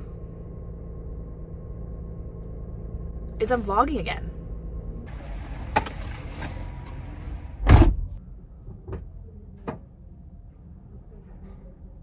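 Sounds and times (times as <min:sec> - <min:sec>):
car door thud: 0:07.6 - 0:08.1.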